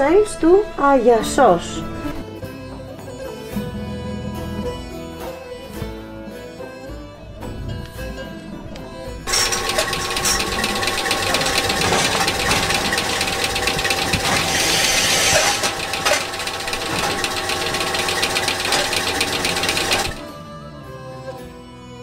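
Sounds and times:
soft music: 0:00.0 - 0:16.6, 0:17.2 - 0:22.0
milking machine clatter: 0:09.3 - 0:20.3.

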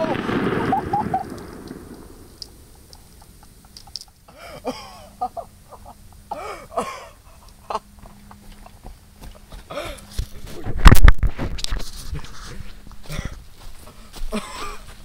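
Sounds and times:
blast: 0:00.0 - 0:02.9.

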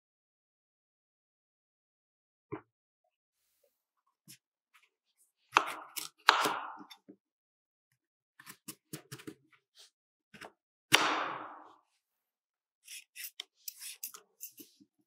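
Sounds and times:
knife cutting on wooden board: 0:05.5 - 0:07.0, 0:12.8 - 0:14.8.

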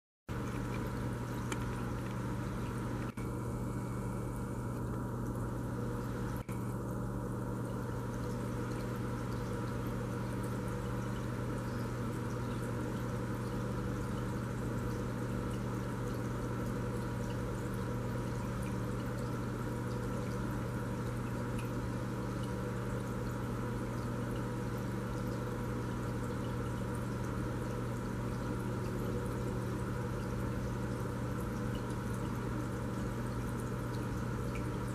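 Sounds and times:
aquarium pump hum: 0:00.3 - 0:34.9
water trickling: 0:00.3 - 0:34.9.

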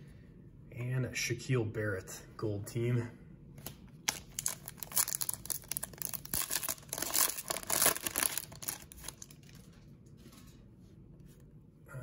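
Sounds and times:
foil wrapper tearing and crinkling: 0:04.0 - 0:09.6.

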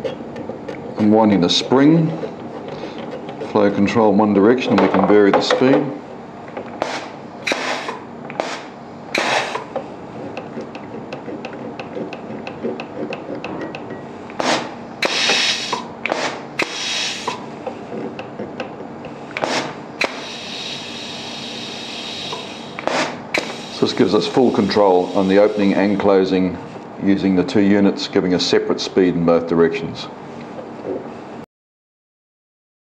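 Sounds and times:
pneumatic exhaust air hiss: 0:06.8 - 0:09.8, 0:14.4 - 0:17.5, 0:19.4 - 0:25.8.

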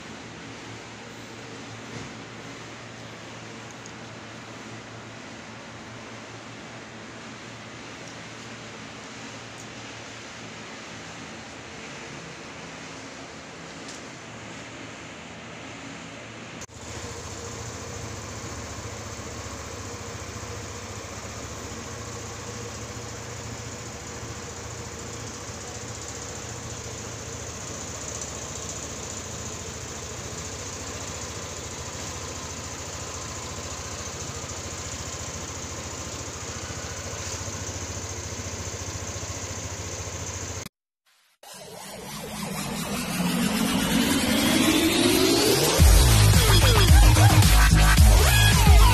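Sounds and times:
scooter engine idling: 0:16.7 - 0:40.7, 0:42.7 - 0:48.9.

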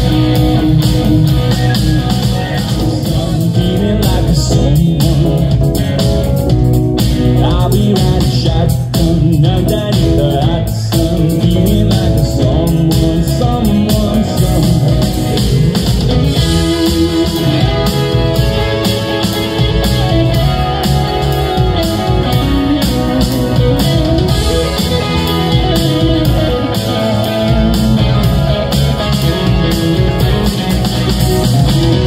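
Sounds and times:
drums: 0:00.0 - 0:32.0
keyboard: 0:00.0 - 0:32.0
electric guitar lead solo: 0:14.7 - 0:32.0.

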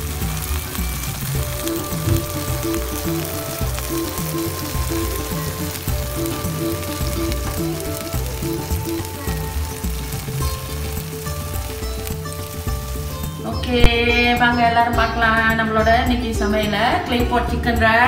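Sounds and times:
clay pot sizzling: 0:00.0 - 0:17.8
background music: 0:00.0 - 0:18.0.

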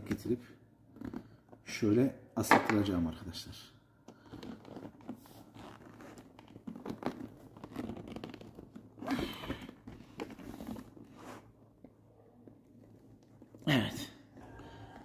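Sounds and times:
fabric rustling and crinkling: 0:04.1 - 0:13.6.

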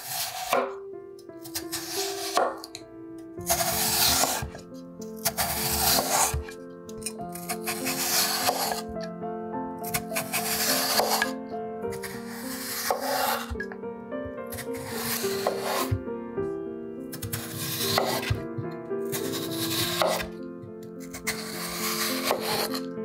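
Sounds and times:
knife slicing through potato: 0:00.0 - 0:00.8, 0:01.4 - 0:02.7, 0:03.4 - 0:09.0, 0:09.8 - 0:13.6, 0:14.5 - 0:16.0, 0:17.2 - 0:18.4, 0:19.1 - 0:20.4, 0:21.0 - 0:22.9
soft background music: 0:00.0 - 0:23.0.

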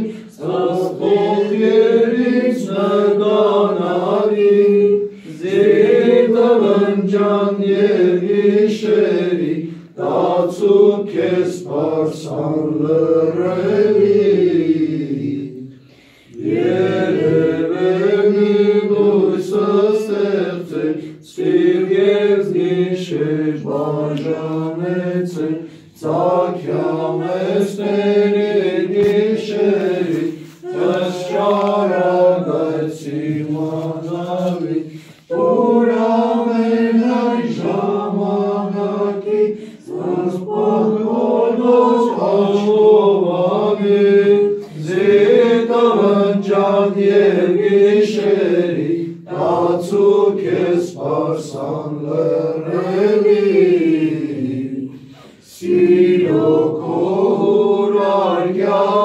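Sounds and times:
group chanting a hymn: 0:00.0 - 0:59.0.

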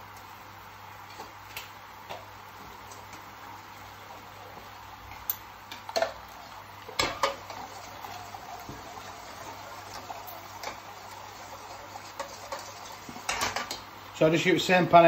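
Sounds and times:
faint hiss of cooking pans: 0:00.0 - 0:15.0.

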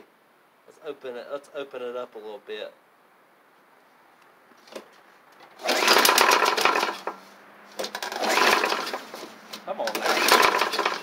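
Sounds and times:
mower engine recoil starter pulls: 0:05.4 - 0:07.2, 0:07.8 - 0:11.0.

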